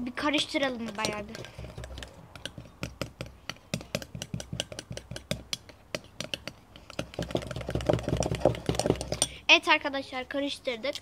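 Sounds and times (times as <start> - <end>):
spoon clinking against glass bowl: 0.3 - 3.0.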